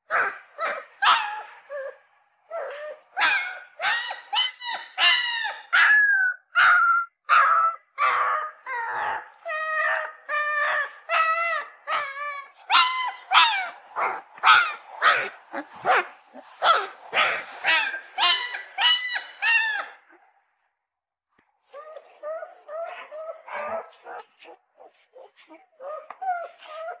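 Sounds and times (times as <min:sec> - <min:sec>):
puppy whining cries: 0:00.1 - 0:20.1, 0:21.7 - 0:27.0.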